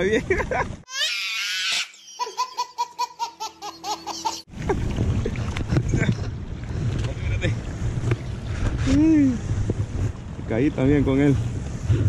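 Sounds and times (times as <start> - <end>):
baby laughing: 0.9 - 4.5
water washing against bank: 4.5 - 12.0
wind rumbling on microphone: 4.5 - 12.0.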